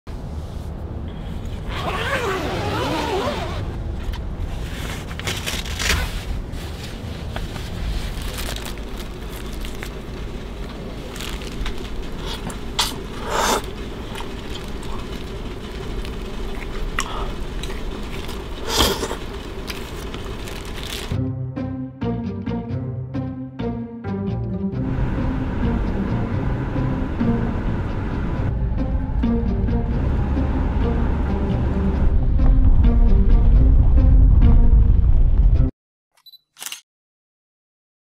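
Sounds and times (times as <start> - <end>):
vehicle rumble: 0.1 - 21.2, 24.7 - 35.7.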